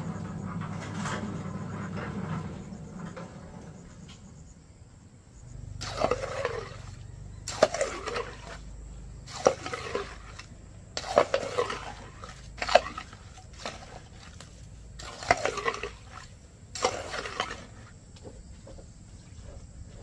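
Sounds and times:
low steady hum: 0:00.0 - 0:20.0
wet slopping splashes: 0:05.8 - 0:17.9.

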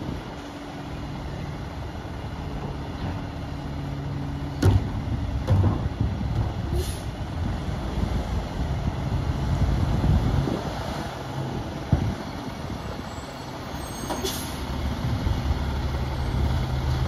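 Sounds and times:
loud clunks: 0:04.6 - 0:06.0.

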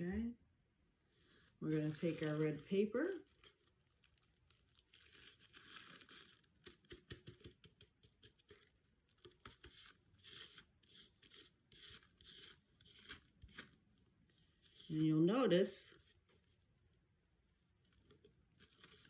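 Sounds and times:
tissue paper rustling: 0:01.3 - 0:06.5, 0:18.6 - 0:19.0.

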